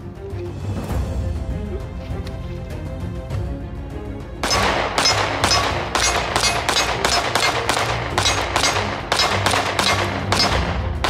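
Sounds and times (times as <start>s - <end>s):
background music: 0.0s - 11.0s
pistol shots: 4.4s - 11.0s.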